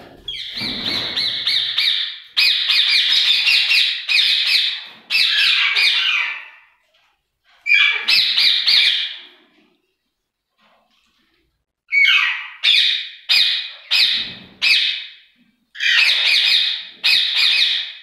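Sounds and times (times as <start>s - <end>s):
parakeets screeching: 11.9s - 15.0s, 15.8s - 18.0s.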